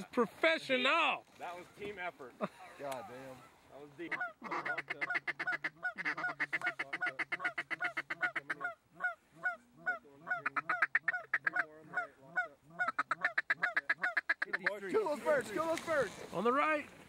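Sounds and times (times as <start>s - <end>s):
goose call honking: 3.3s - 14.9s.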